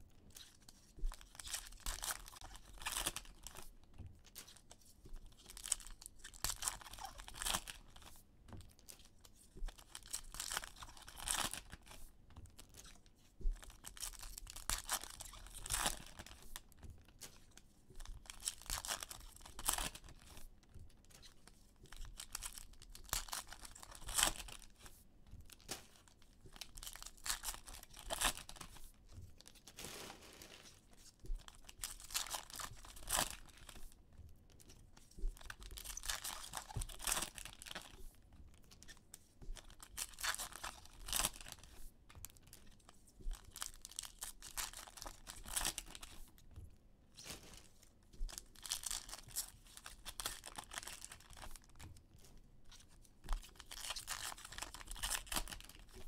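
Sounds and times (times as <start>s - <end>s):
wrappers crinkling: 0.3s - 3.6s, 4.4s - 8.1s, 9.8s - 12.0s, 13.6s - 16.6s, 18.1s - 20.5s, 21.2s - 24.9s, 25.5s - 34.0s, 34.6s - 38.1s, 39.6s - 41.8s, 42.4s - 46.4s, 47.1s - 51.8s, 52.7s - 56.0s
foil packs tearing: 29.7s - 30.8s.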